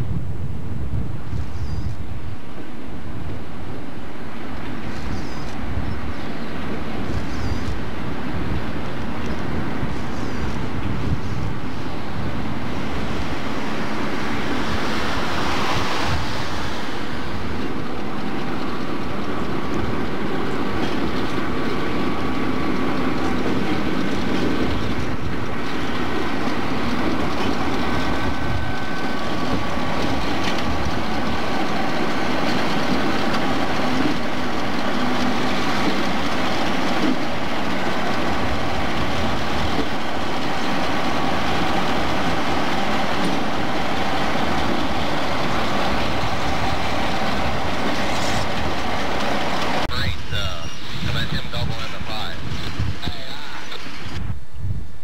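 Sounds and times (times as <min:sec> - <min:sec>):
wheel and rail noise: 0:00.0 - 0:55.0
locomotive engine drone: 0:02.0 - 0:54.4.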